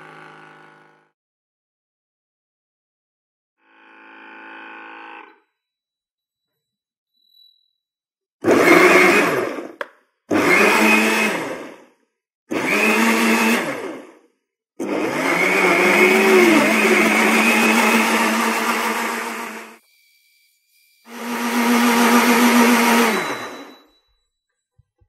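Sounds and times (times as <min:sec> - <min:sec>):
blender chopping tomatoes: 0:08.4 - 0:11.9, 0:12.5 - 0:14.2, 0:14.8 - 0:19.8, 0:21.1 - 0:23.7.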